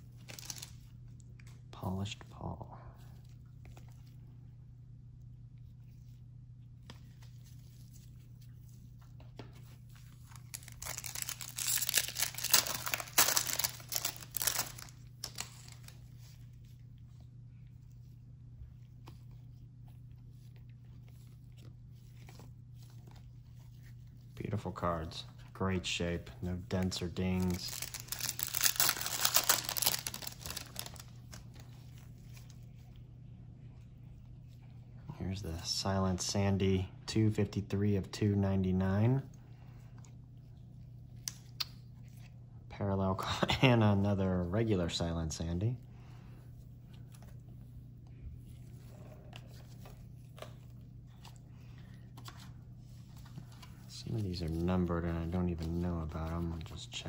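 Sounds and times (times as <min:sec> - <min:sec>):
foil wrapper tearing and crinkling: 0:00.2 - 0:00.7, 0:10.3 - 0:16.0, 0:26.7 - 0:31.5
cards being handled: 0:08.9 - 0:16.0, 0:25.7 - 0:32.5, 0:49.3 - 0:57.0.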